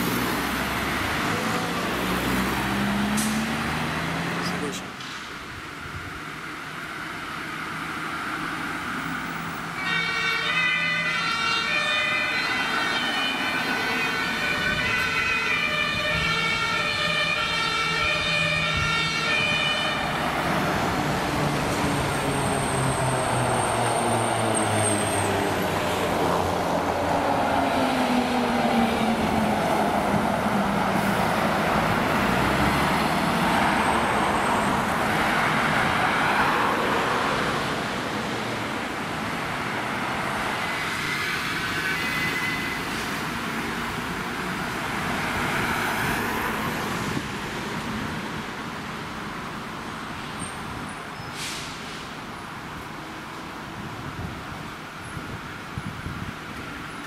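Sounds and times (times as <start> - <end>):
fire trucks passing: 0.0 - 57.0
two-tone fire siren: 9.7 - 20.5, 40.6 - 43.7.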